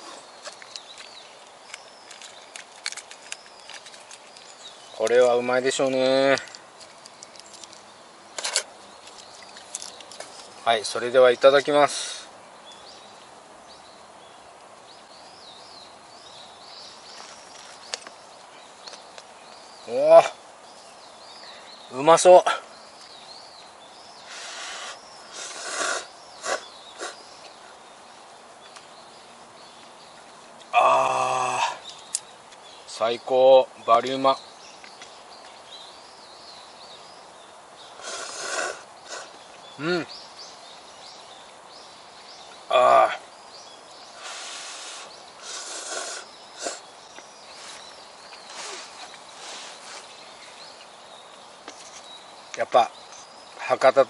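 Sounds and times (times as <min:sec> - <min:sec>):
faint bird chirps: 0:07.1 - 0:54.0
person slurping noodles: 0:38.0 - 0:39.3, 0:44.3 - 0:46.8.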